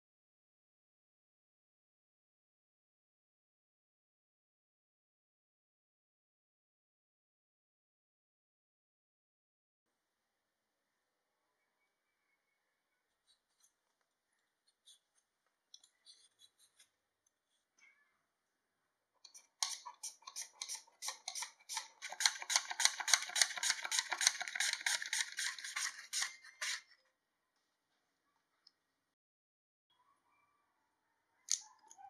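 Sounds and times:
mandoline slicing potato: 19.3 - 26.9
peeler scraping potato skin: 19.3 - 26.9.

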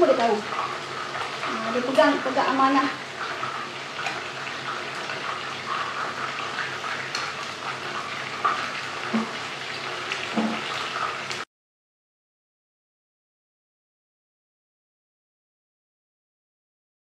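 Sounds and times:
chicken sizzling in oil: 0.0 - 11.5.

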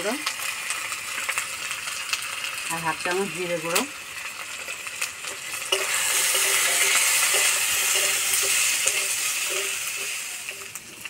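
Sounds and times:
potatoes sizzling in oil: 0.0 - 11.0
spatula scraping pan: 5.3 - 10.8.

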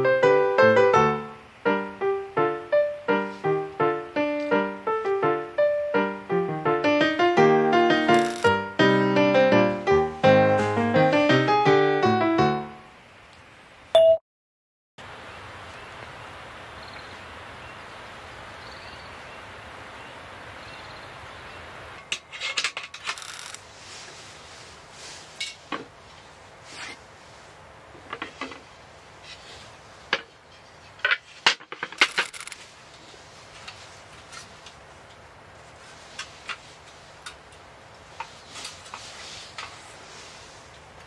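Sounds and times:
steady hiss: 0.0 - 13.8, 23.2 - 41.0.

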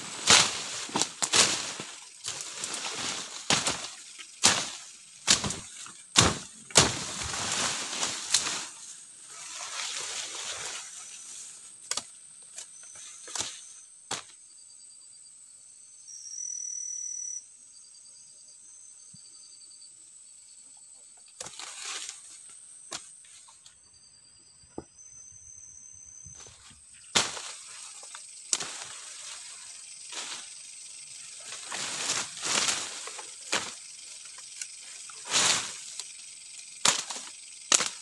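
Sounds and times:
shaking leaves and stems: 0.0 - 11.6, 26.4 - 38.0
high insect drone: 0.0 - 38.0
machete slashing through undergrowth: 0.1 - 8.8, 27.1 - 30.5, 36.8 - 38.0
faint chirps: 12.5 - 21.4, 23.3 - 37.7.

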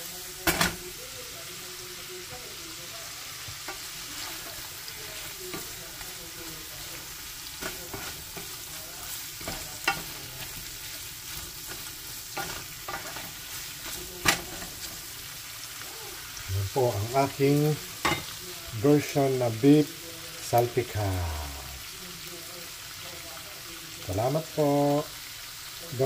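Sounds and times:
meat sizzling in a frying pan: 0.0 - 26.0
spatula knocking and scraping pan: 7.5 - 15.1.

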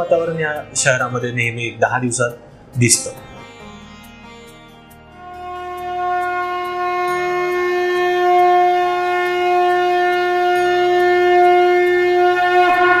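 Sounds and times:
conch shell blown: 5.1 - 13.0.

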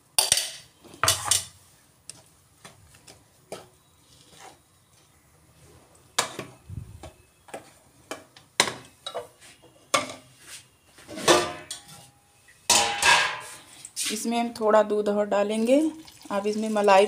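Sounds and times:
utensils clattering against a pan: 11.1 - 12.1, 12.7 - 13.6.

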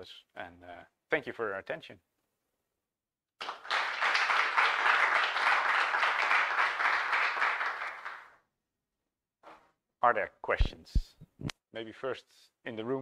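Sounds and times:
audience applauding: 3.4 - 8.4.

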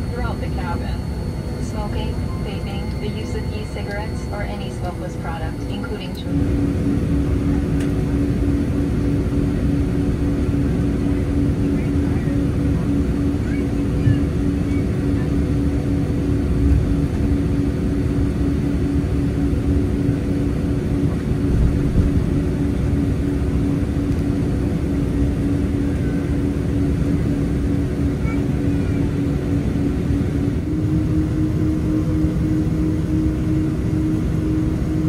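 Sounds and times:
aircraft cabin rumble: 0.0 - 35.0
droning engine hum: 0.0 - 35.0.

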